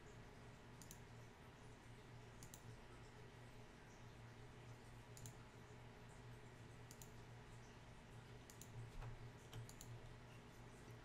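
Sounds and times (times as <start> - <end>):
low electrical hum: 0.0 - 11.0
computer mouse clicks: 0.8 - 1.0, 2.4 - 2.7, 5.1 - 5.4, 6.9 - 7.2, 8.4 - 10.2.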